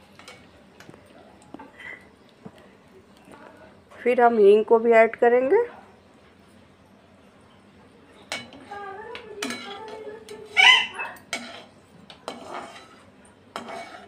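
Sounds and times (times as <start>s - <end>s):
metal spoon scraping pan: 8.2s - 14.0s
spices sizzling in hot oil: 11.2s - 14.0s.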